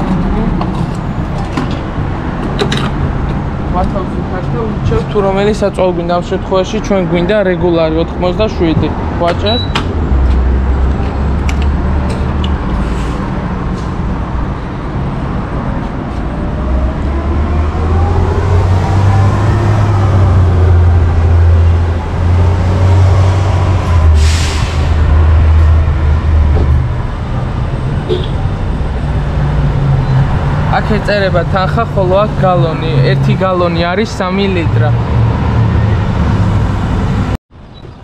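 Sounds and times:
engine tone rising and falling: 0:15.3 - 0:37.4.

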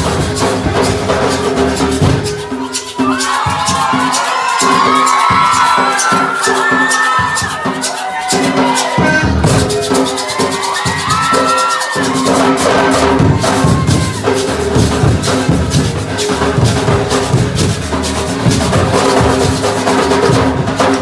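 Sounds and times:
shakers rattling: 0:00.0 - 0:20.0
hand drums: 0:00.0 - 0:21.0
held steady notes: 0:12.1 - 0:21.0.

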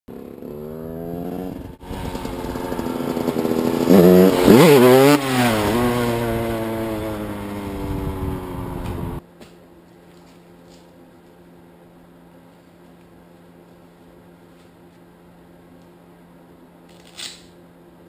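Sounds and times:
dirt bike engine revving: 0:00.1 - 0:09.2.

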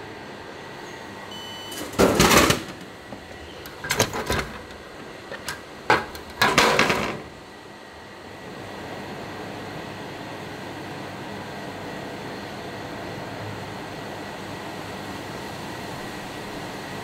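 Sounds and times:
steady background hum: 0:00.0 - 0:17.0
short electronic beep: 0:01.3 - 0:01.8
clattering and rattling: 0:03.7 - 0:07.3.

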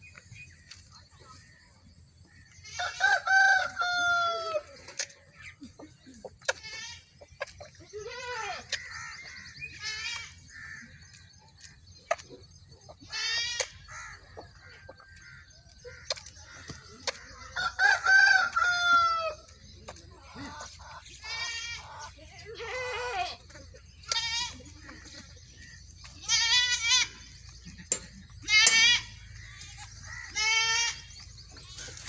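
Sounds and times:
hens clucking: 0:02.4 - 0:32.0
goat bleating: 0:07.8 - 0:09.1, 0:13.0 - 0:13.8, 0:21.2 - 0:25.1, 0:26.1 - 0:27.3, 0:28.4 - 0:31.9.

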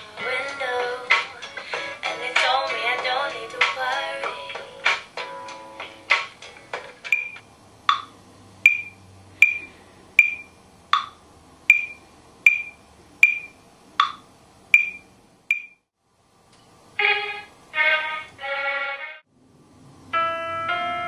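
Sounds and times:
metronome ticking: 0:07.1 - 0:08.1, 0:08.7 - 0:14.2, 0:14.8 - 0:15.8.

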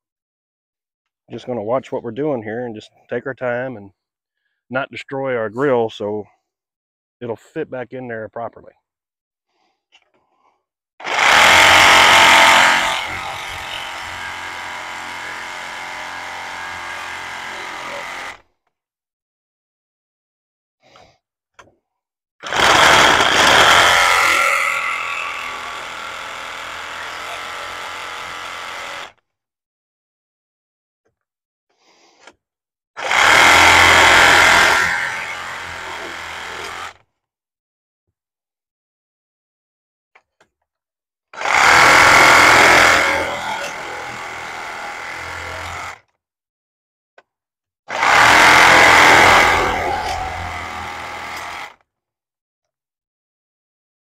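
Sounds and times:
power tool whining: 0:11.0 - 0:18.4, 0:22.4 - 0:29.1, 0:33.0 - 0:37.0, 0:41.4 - 0:46.0, 0:47.9 - 0:51.8.

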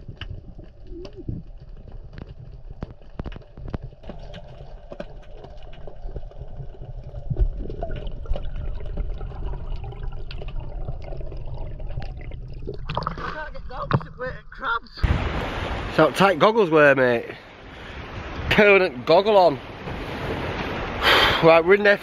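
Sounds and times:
bubbles streaming: 0:00.0 - 0:15.7
muffled underwater water rush: 0:00.0 - 0:22.0.

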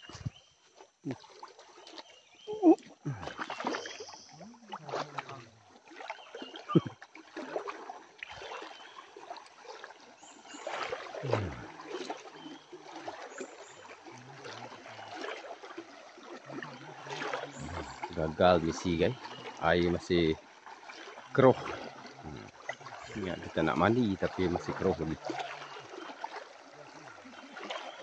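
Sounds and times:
river water splashing: 0:00.0 - 0:28.0
low voices: 0:11.2 - 0:11.7, 0:16.7 - 0:20.4, 0:22.2 - 0:22.5, 0:23.1 - 0:25.2.

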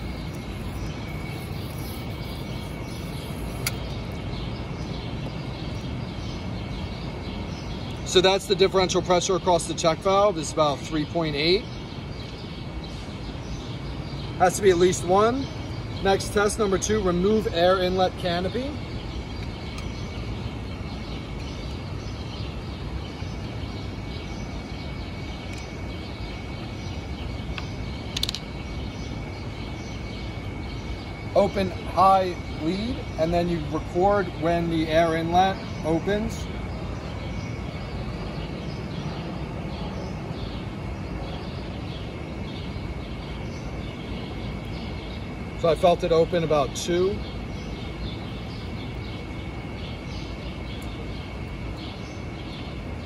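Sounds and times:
high chirps: 0:00.0 - 0:06.5
low city rumble: 0:00.0 - 0:53.0
sharp click: 0:03.5 - 0:04.0, 0:27.5 - 0:28.5.

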